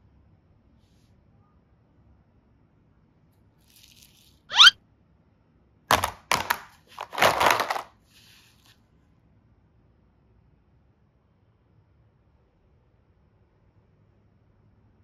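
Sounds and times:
plastic boxes clattering together: 5.9s - 7.9s.

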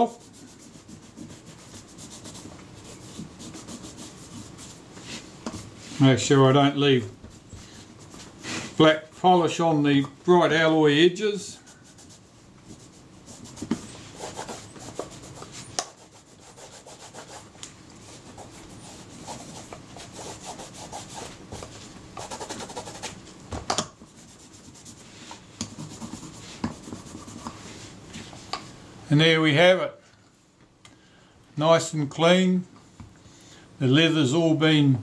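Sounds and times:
cloth buffing leather: 0.0s - 6.1s, 11.6s - 23.2s.

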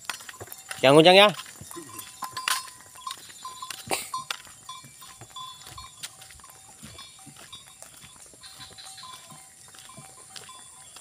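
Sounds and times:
wooden cart knocking and clicking: 0.0s - 7.8s
ox hooves clopping: 0.0s - 11.0s.

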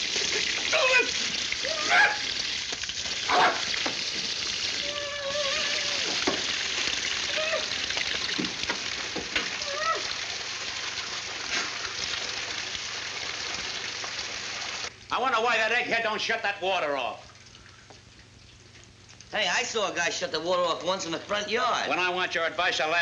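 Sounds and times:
water spraying from pipe: 0.0s - 14.9s.

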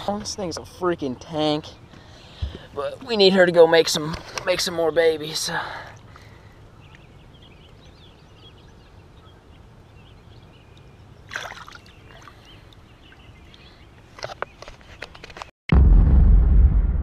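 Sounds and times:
water lapping and trickling: 8.8s - 14.2s
fish splashing in water: 11.3s - 12.5s.

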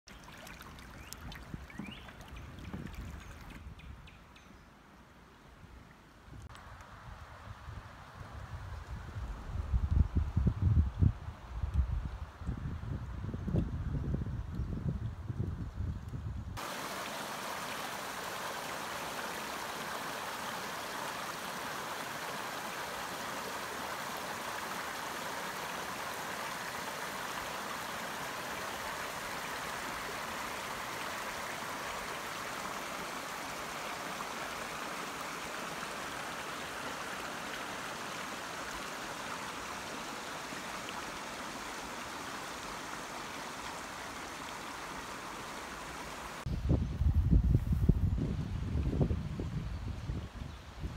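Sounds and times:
creek water rushing over rocks: 0.1s - 3.7s, 16.6s - 46.5s.

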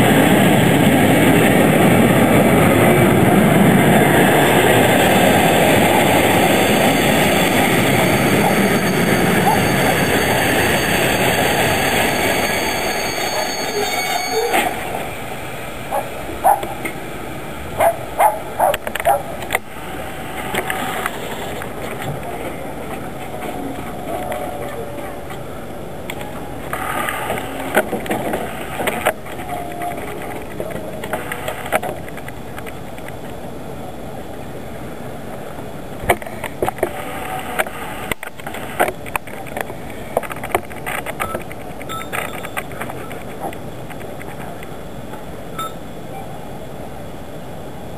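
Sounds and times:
train coaches rumbling and hissing: 0.0s - 47.9s
wheel squeals: 5.8s - 16.8s
dog barking: 15.9s - 16.8s, 17.8s - 19.3s.

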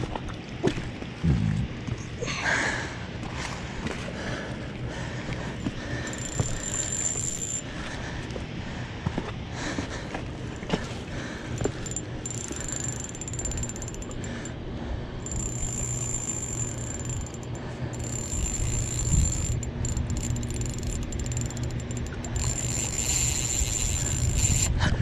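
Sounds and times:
steady low rumble: 1.0s - 25.0s
fishing reel clicking and whirring: 5.4s - 8.0s, 11.4s - 14.6s, 15.2s - 24.9s.

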